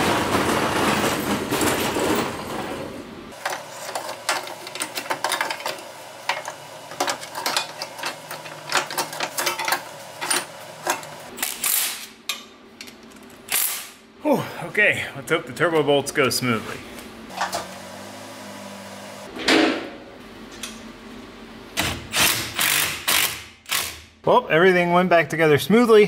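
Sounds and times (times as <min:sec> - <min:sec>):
hand tools clicking and clanking: 0:00.0 - 0:13.9, 0:17.3 - 0:17.7.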